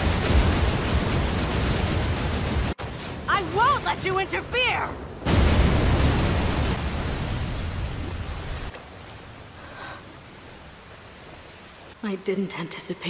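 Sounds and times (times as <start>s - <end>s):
rain hissing: 0.0s - 4.4s, 5.2s - 12.0s
low rumbling explosion blast: 5.2s - 8.3s.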